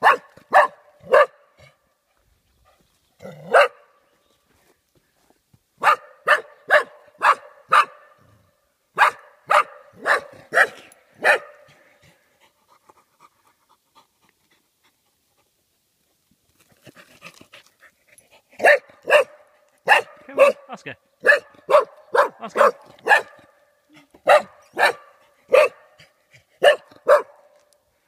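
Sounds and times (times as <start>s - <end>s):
dog barking: 0.0s - 1.5s, 3.5s - 3.9s, 5.8s - 8.2s, 9.0s - 11.7s, 18.6s - 23.6s, 24.2s - 26.0s, 26.6s - 27.5s.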